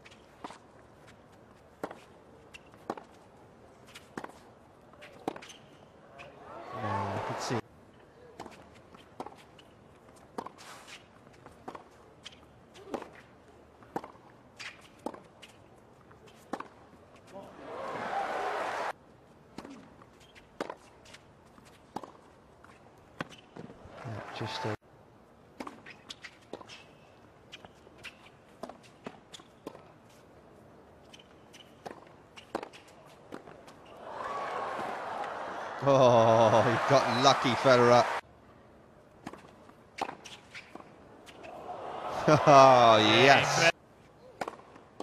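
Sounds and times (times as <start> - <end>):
tennis ball bouncing: 1.7 - 3.2, 8.4 - 10.6, 11.4 - 15.6, 16.3 - 16.8, 19.6 - 22.3, 31.0 - 33.8, 44.4 - 45.0
tennis ball hit by racquets: 11.6 - 15.6, 31.1 - 33.6, 39.2 - 41.6, 44.4 - 45.0
rackets striking tennis ball: 44.4 - 45.0.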